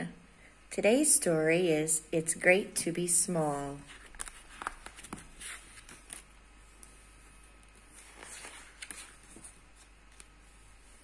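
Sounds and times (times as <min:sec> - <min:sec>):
paper pages rustling: 0:03.8 - 0:11.0.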